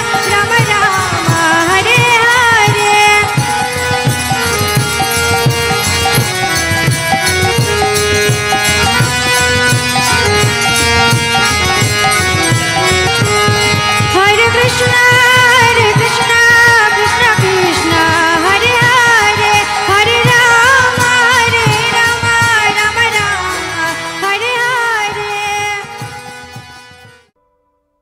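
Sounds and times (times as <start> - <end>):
long held melodic notes: 0.0 - 21.3.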